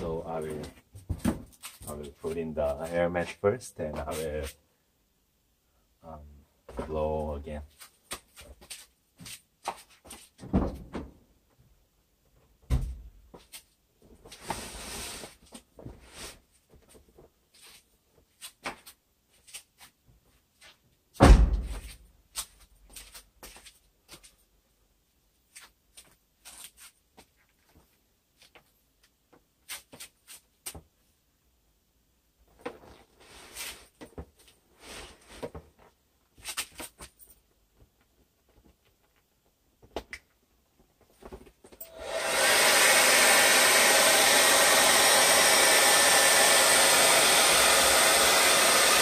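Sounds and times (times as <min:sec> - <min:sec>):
loud thump: 0:21.2 - 0:21.8.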